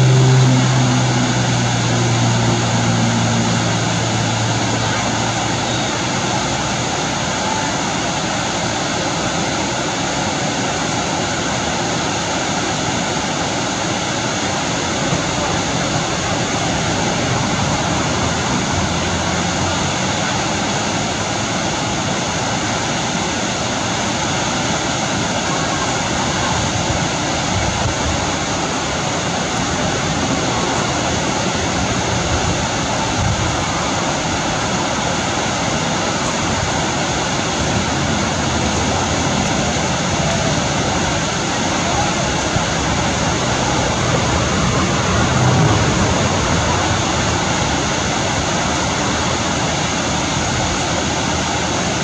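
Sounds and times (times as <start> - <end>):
waterfall rushing: 0.0 - 52.0.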